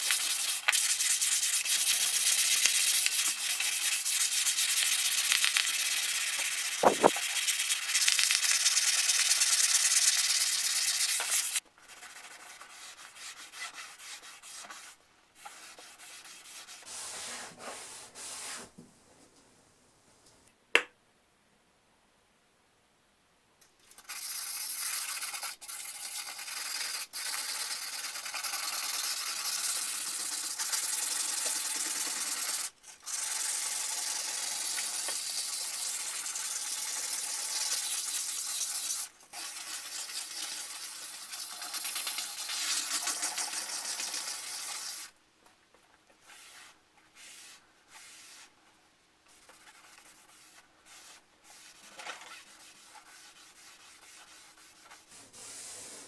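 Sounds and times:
rag rubbing blade: 6.4 - 7.4.

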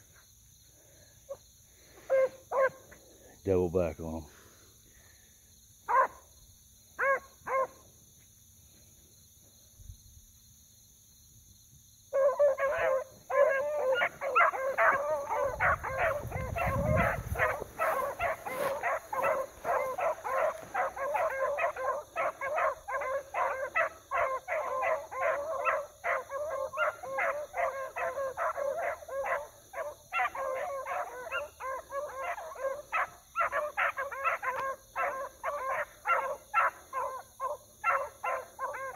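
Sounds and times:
hounds baying: 1.2 - 3.3, 5.9 - 6.2, 7.0 - 7.9, 12.1 - 38.9.

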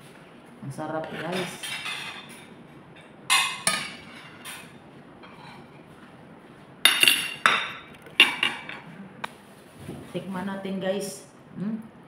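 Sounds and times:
cutlery clinking against plates: 1.1 - 5.7, 6.9 - 8.9.

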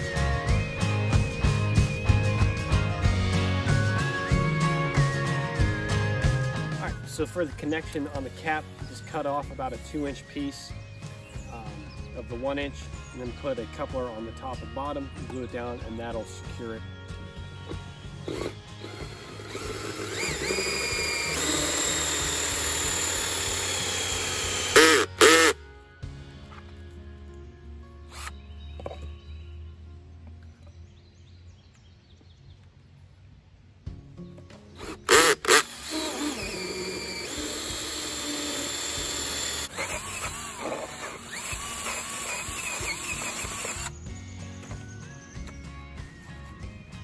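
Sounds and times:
drill cutting through plastic: 18.3 - 25.6, 34.8 - 43.9.

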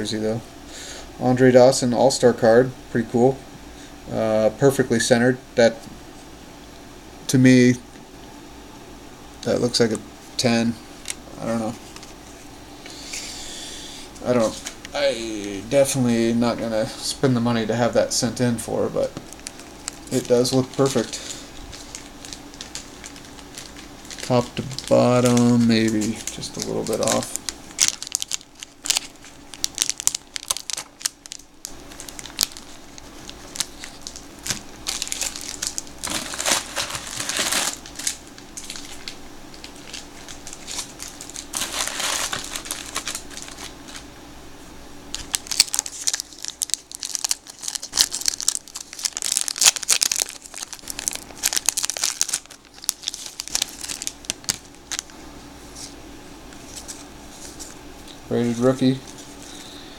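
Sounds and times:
paper wrapper crinkling and tearing: 19.2 - 44.1, 45.1 - 56.0, 56.6 - 57.8.

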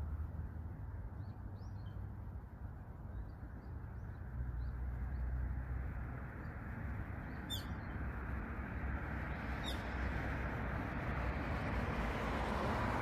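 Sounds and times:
faint bird chirps: 7.3 - 8.0
high upward-sweeping bird calls: 7.3 - 8.0, 9.6 - 9.9.

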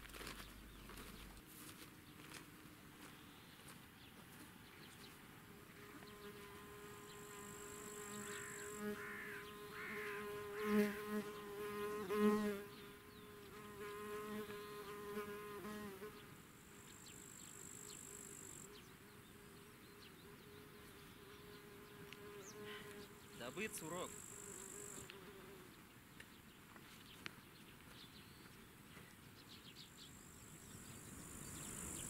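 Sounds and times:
flying insect buzzing: 5.7 - 25.8, 30.4 - 32.0
high insect trill: 23.4 - 25.1.

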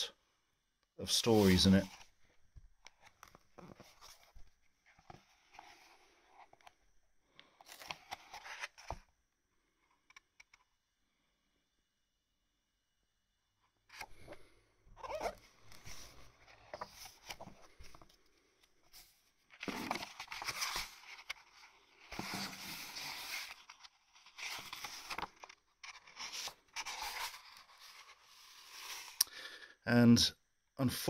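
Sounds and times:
book pages turning: 2.8 - 6.8, 7.4 - 9.1, 13.9 - 29.2
paper rustling: 7.6 - 9.0, 15.0 - 18.2, 18.9 - 29.2.

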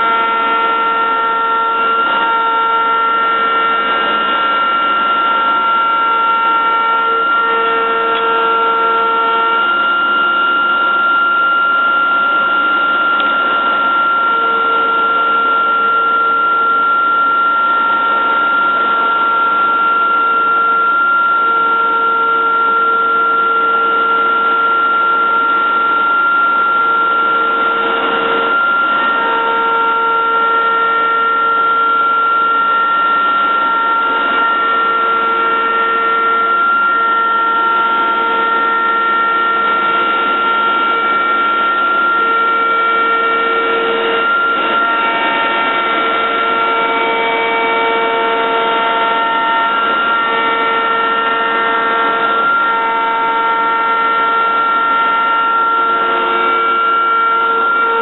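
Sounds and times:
drive motor tones: 0.0 - 58.0
router spindle whine: 0.0 - 58.0.

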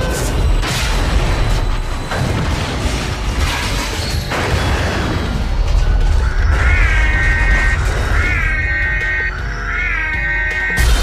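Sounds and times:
background music: 0.0 - 11.0
sharp smashing impacts: 10.8 - 11.0.

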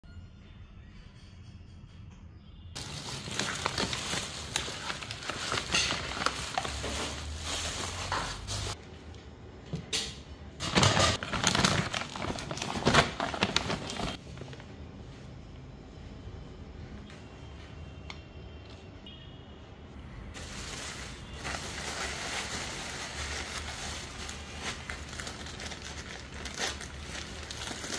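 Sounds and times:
plastic bags rustling: 2.8 - 8.8, 10.6 - 14.8, 20.4 - 27.9.

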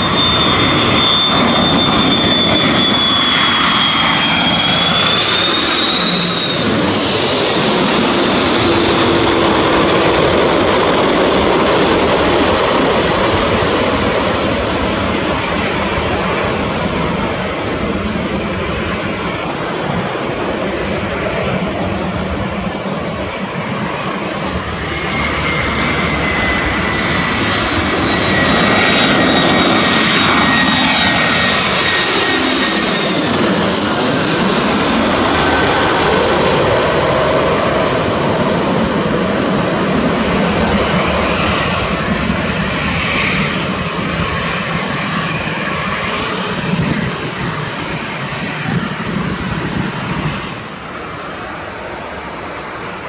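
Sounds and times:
jet engines passing: 0.0 - 53.0.

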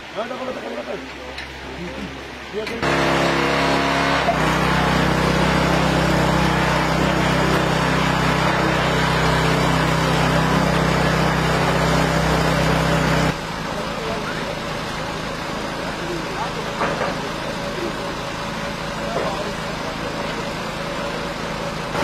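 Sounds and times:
heavy vehicle engine running: 2.2 - 22.0.

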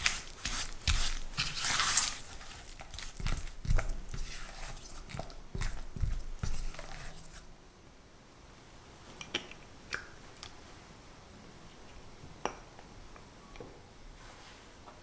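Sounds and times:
spatula scraping glass bowl: 0.0 - 7.4.

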